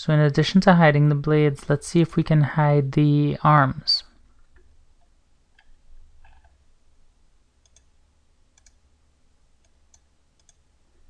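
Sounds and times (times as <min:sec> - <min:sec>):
faint computer mouse clicks: 0:07.6 - 0:07.9, 0:08.6 - 0:08.8, 0:09.6 - 0:10.6.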